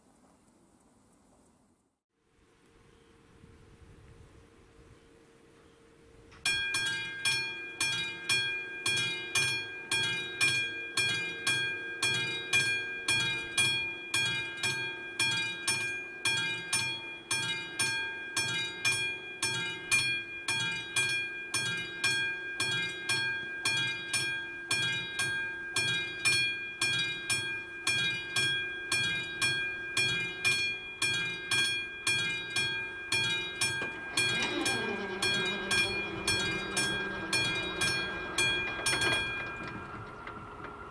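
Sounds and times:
level crossing warning bell: 6.4s - 40.9s
barrier motor hum: 33.2s - 40.9s.

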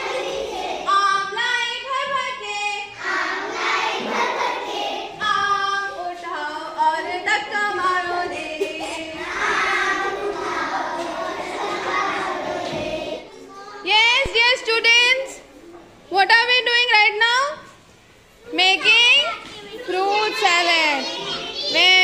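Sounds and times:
children singing together: 0.0s - 13.7s.

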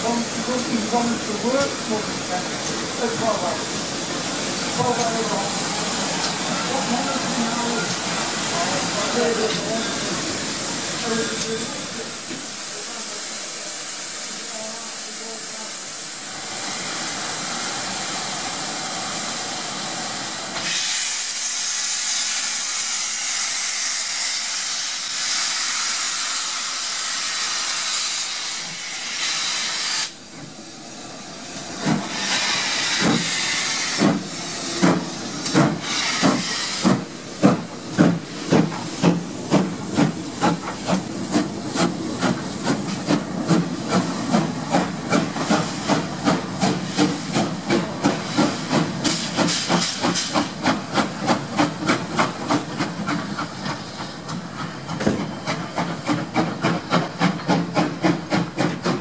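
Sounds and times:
steam locomotive hissing: 0.0s - 59.0s
steam locomotive exhaust chuffs: 31.8s - 59.0s.

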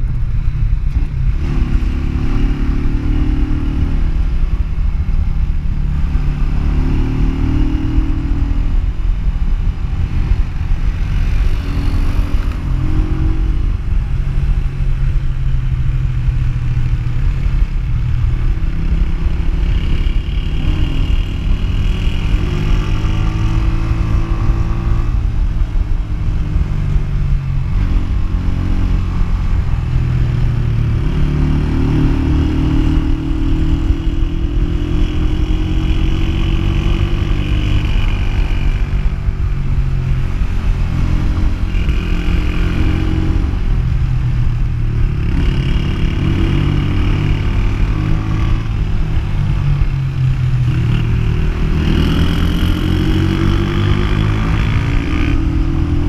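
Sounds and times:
motorcycle engine running: 0.0s - 56.0s.

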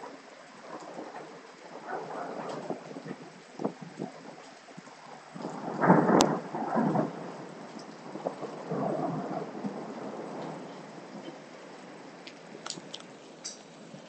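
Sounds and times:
rain hissing: 0.0s - 14.0s
thunder rumbling: 0.0s - 14.0s.

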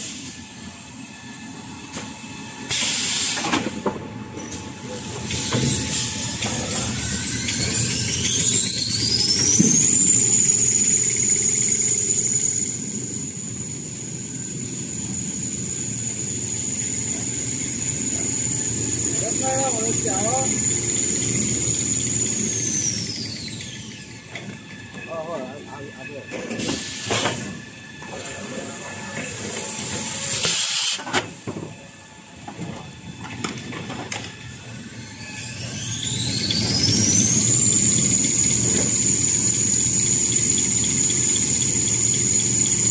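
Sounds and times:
high machine whine: 0.0s - 42.9s
loud air hiss: 2.6s - 3.7s, 26.6s - 27.5s, 29.7s - 31.2s
machine running rumble: 36.2s - 42.9s.

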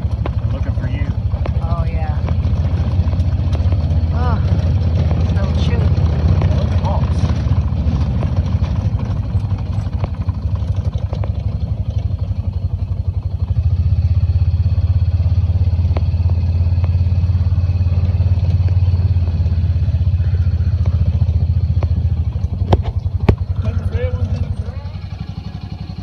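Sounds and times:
atv engine chugging: 0.0s - 26.0s.

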